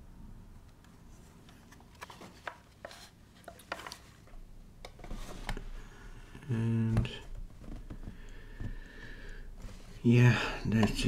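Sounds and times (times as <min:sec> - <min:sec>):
clicks knocks and rubbing: 0:06.9 - 0:08.8.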